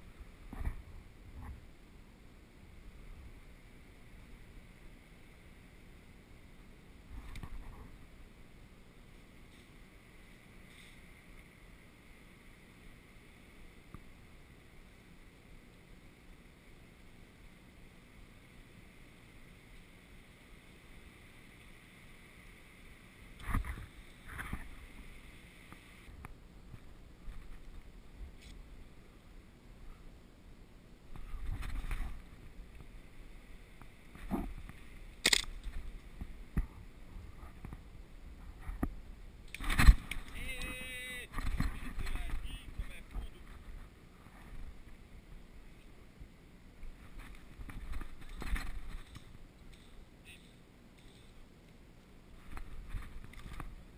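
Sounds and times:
faint outdoor hiss: 0:00.0 - 0:53.9
sharp crack: 0:35.2 - 0:35.8.

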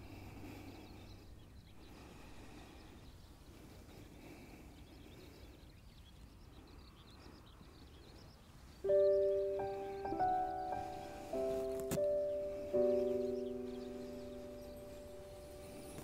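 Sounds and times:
faint outdoor background: 0:00.0 - 0:16.0
high bird chirps: 0:05.0 - 0:16.0
background music held notes: 0:08.8 - 0:16.0.

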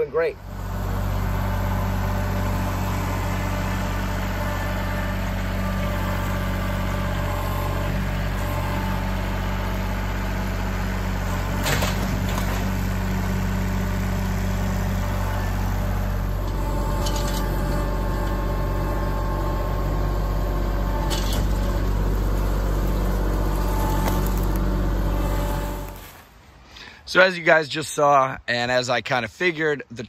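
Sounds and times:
diesel tractor engine running: 0:00.0 - 0:26.1.

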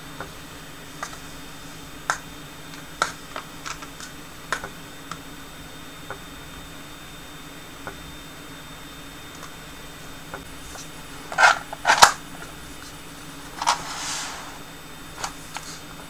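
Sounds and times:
foil trays being handled: 0:10.7 - 0:12.2, 0:12.8 - 0:14.6.

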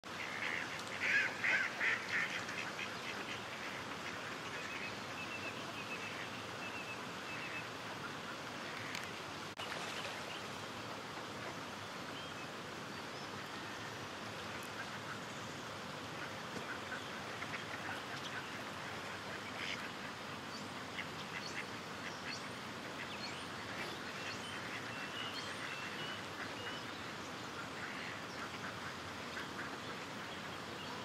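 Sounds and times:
background hiss: 0:00.0 - 0:31.0
ducks quacking: 0:00.2 - 0:04.9.

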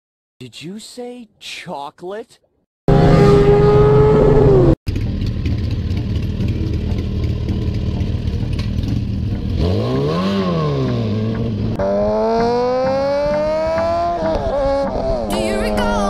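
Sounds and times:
loud falling tone: 0:02.9 - 0:04.8
motorcycle engine revving: 0:02.9 - 0:16.0.

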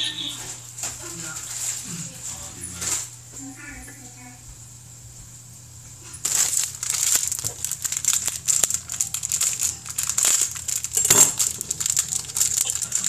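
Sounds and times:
close crinkling and rustling: 0:00.4 - 0:03.1, 0:06.0 - 0:13.0.

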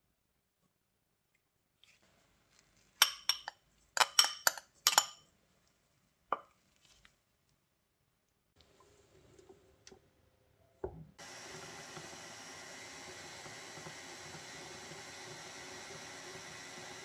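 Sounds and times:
metal spoon clinking against bowls: 0:03.0 - 0:05.2.

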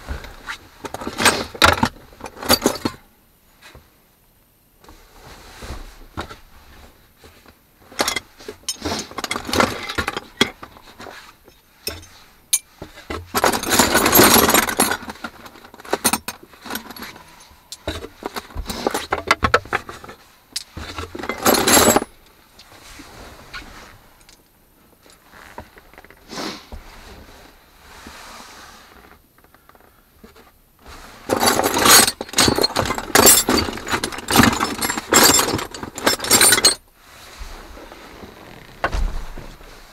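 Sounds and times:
tools and cans clattering in crate: 0:00.9 - 0:03.0, 0:07.8 - 0:22.2, 0:31.2 - 0:36.8.

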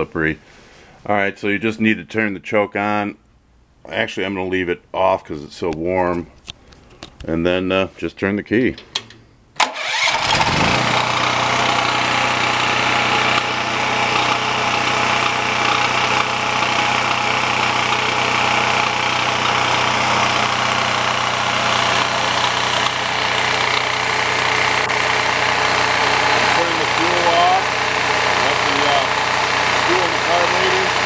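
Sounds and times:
generator engine running: 0:09.6 - 0:31.0.

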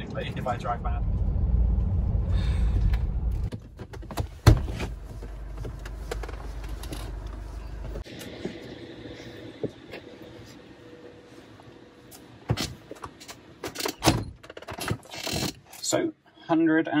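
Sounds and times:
vehicle rumble from inside: 0:00.0 - 0:12.4.

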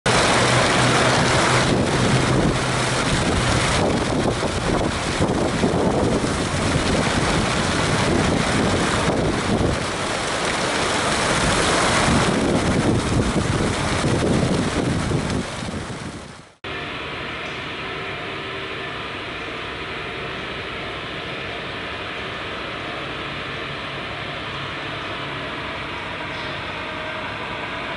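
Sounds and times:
wind buffeting microphone: 0:00.1 - 0:16.5
fountain water rippling: 0:00.1 - 0:16.6.

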